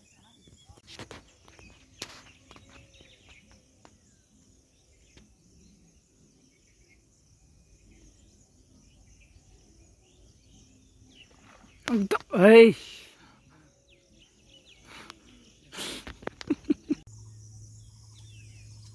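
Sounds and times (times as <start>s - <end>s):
soft bird chirps: 0.0s - 18.9s
insects hissing: 14.7s - 18.7s.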